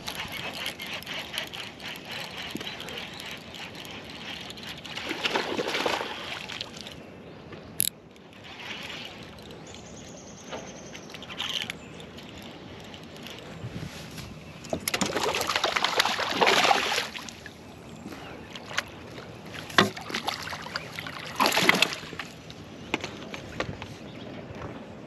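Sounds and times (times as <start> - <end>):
fishing reel being cranked: 0.0 - 5.3, 11.1 - 13.6
water sloshing against boat hull: 0.0 - 23.4.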